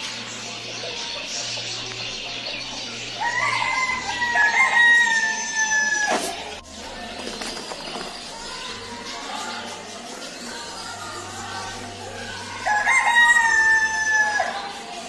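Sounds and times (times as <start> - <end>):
rooster crowing: 3.2 - 6.1, 12.6 - 14.8.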